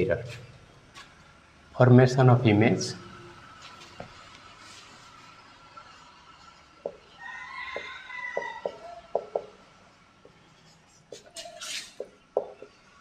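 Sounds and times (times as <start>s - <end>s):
marker squeaking on whiteboard: 10.6s - 12.9s.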